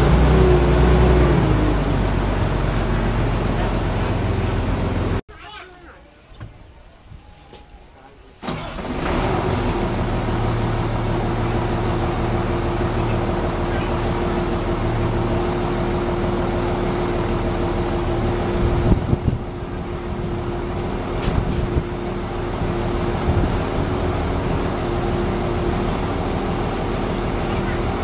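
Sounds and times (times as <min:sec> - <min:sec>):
diesel engine running: 0:00.0 - 0:05.2, 0:08.4 - 0:28.0.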